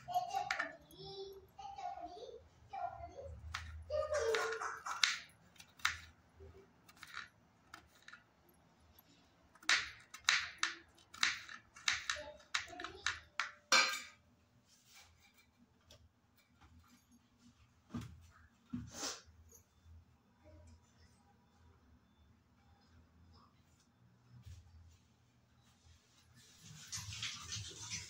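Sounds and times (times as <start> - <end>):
knife chopping on plastic board: 3.5 - 6.1, 9.6 - 13.6.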